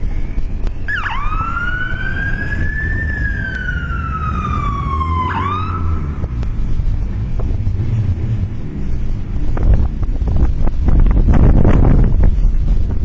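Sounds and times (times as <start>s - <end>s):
siren-like wailing tone: 0.0s - 6.4s
low rumble: 0.0s - 13.0s.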